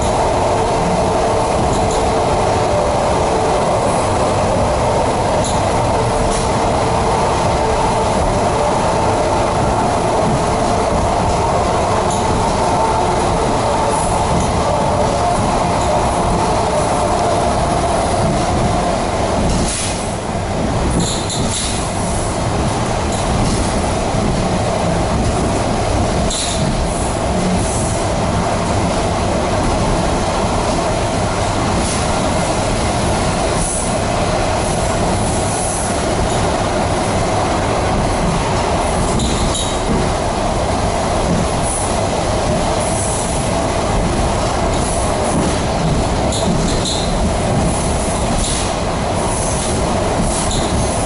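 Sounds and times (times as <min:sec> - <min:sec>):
train wheels rumbling: 0:00.0 - 0:51.0.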